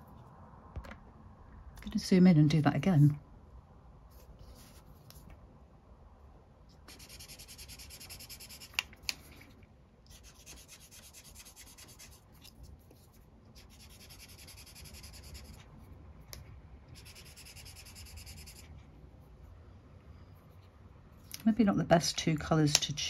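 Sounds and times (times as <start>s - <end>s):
marker nib rubbing on paper: 6.9s - 8.8s, 10.1s - 15.7s, 16.9s - 18.7s.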